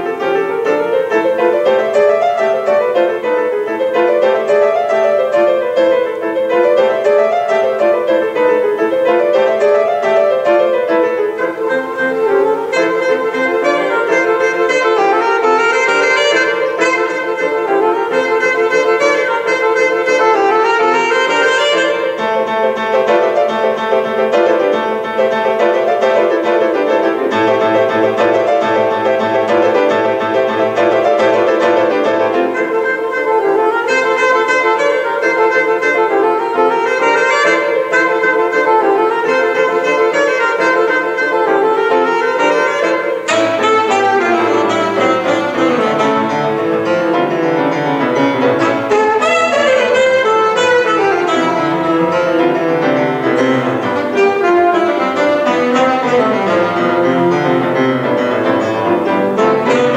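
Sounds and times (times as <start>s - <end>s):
alto saxophone: 0.0s - 59.9s
grand piano: 0.0s - 59.9s.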